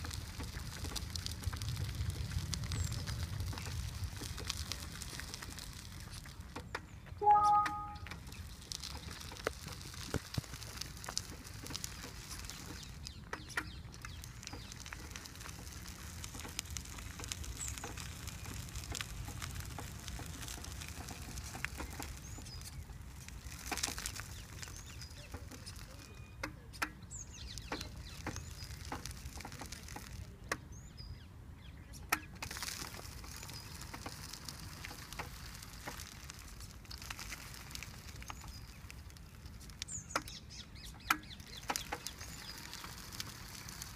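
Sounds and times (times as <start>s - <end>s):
gravel crunching under tyres: 0.0s - 43.9s
faint bird chirps: 7.2s - 8.1s.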